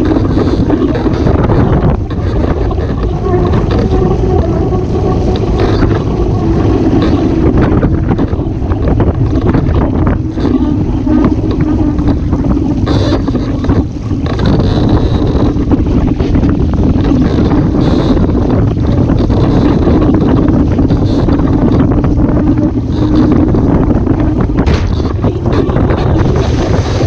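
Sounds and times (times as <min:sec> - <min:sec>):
faint wavering hum: 0:00.0 - 0:27.0
rushing water and spray: 0:00.0 - 0:27.0
wind buffeting microphone: 0:00.0 - 0:27.0.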